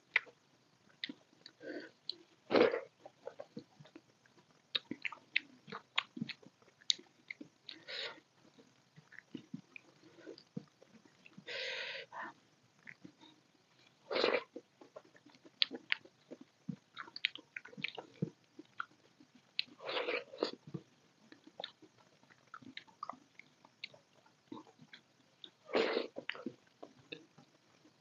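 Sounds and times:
wet chewing and lip smacks: 3.3s - 7.8s, 14.5s - 19.8s, 20.4s - 25.6s.

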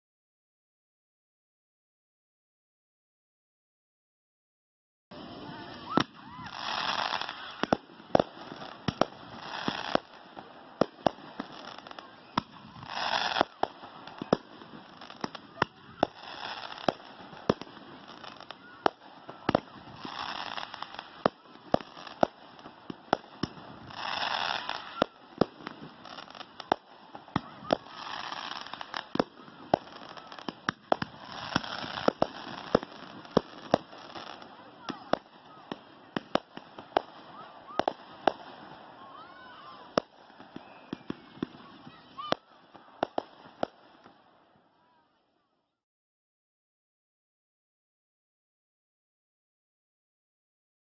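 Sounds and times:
fireworks launching and bursting: 5.1s - 44.6s.

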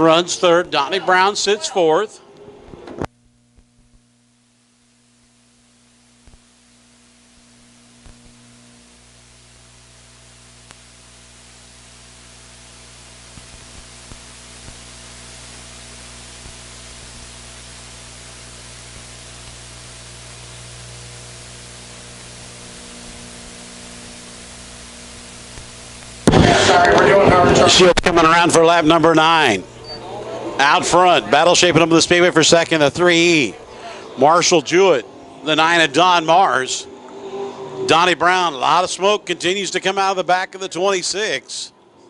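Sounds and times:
electrical hum with hiss: 0.0s - 42.0s.

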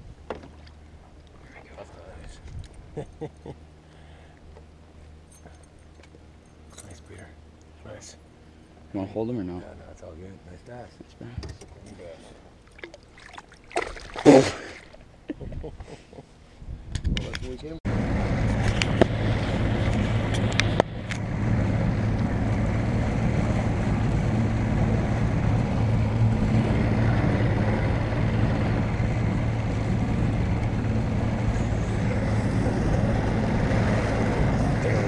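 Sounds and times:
outboard motor droning: 8.0s - 15.3s, 17.9s - 35.0s.

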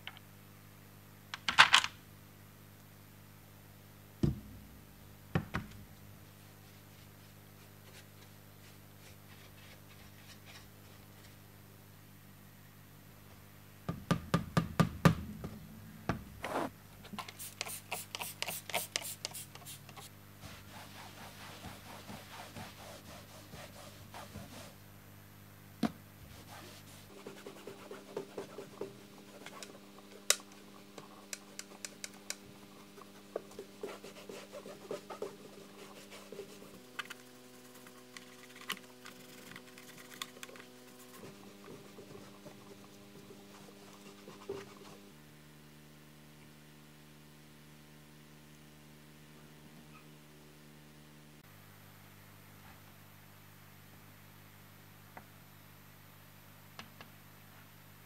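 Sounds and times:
sponge scrubbing and rubbing case: 20.4s - 24.8s, 26.3s - 29.8s, 32.8s - 45.1s.

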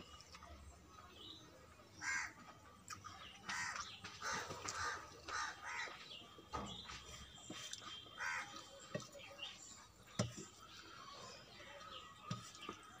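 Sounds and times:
bird cawing: 2.0s - 2.3s, 8.2s - 8.5s.

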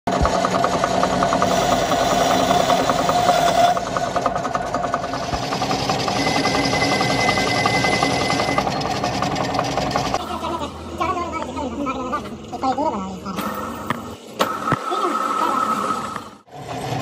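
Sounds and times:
metal lathe humming: 0.1s - 17.0s.

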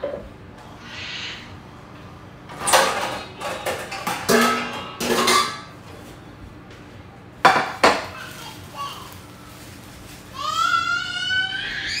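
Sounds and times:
dishes clattering: 2.5s - 5.8s, 7.4s - 8.2s
plastic rustle: 8.0s - 11.4s.

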